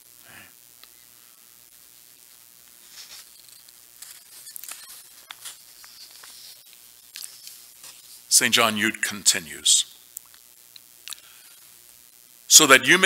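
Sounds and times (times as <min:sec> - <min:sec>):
soft rustles: 0:02.3 - 0:08.3.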